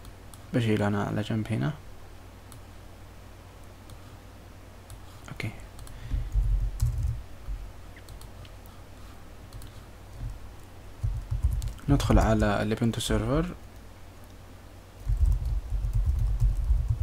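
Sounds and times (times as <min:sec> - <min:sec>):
computer keyboard clicks: 0:05.8 - 0:07.2, 0:11.0 - 0:12.4.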